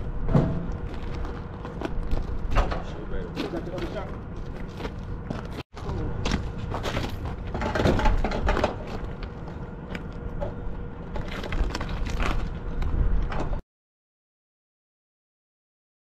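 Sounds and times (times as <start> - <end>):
footsteps on gravel: 0.7 - 2.6, 3.3 - 7.5.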